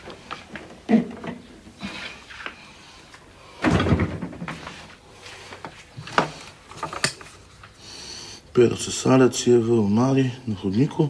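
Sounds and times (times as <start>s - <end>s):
cupboard door banging shut: 3.6s - 4.6s.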